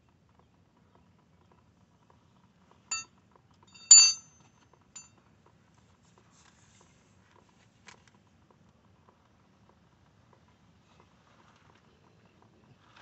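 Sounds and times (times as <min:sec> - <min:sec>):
metal parts clinking: 0:03.7 - 0:04.4.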